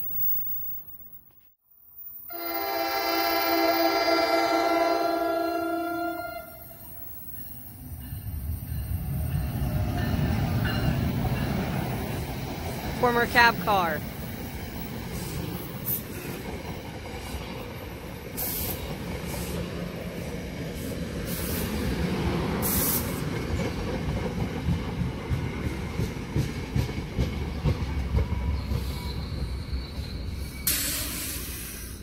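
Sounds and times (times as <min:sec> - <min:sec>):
train wheels rumbling on rail: 0:02.8 - 0:13.2, 0:14.0 - 0:32.0
brief hisses: 0:30.6 - 0:32.0.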